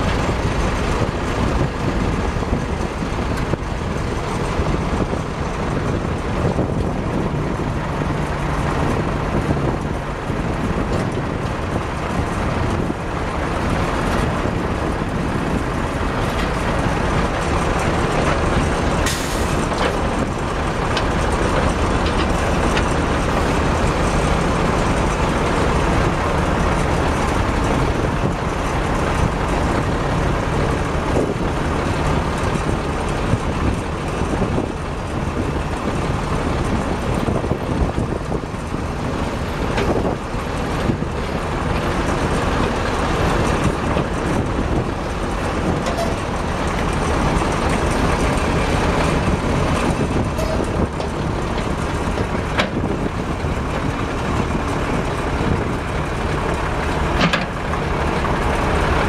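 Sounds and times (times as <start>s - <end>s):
diesel engine running steadily: 0.0s - 59.0s
backhoe hydraulics: 15.8s - 25.6s.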